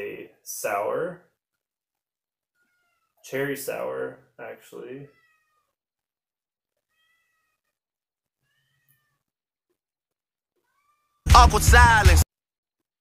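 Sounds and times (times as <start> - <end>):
faint high-pitched cries: 2.5 - 3.2, 5.1 - 5.8, 6.8 - 9.3, 10.6 - 11.3.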